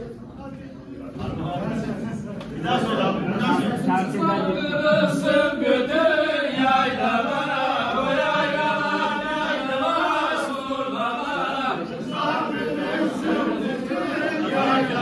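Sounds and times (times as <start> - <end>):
men singing folk song in unison: 4.5 - 15.0.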